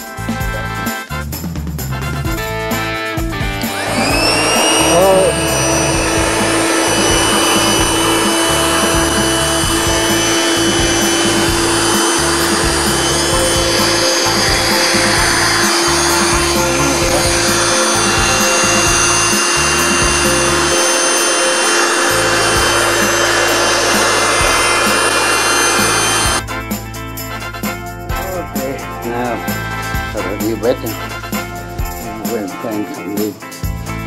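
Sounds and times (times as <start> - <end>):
electric air pump humming: 3.4 - 26.5.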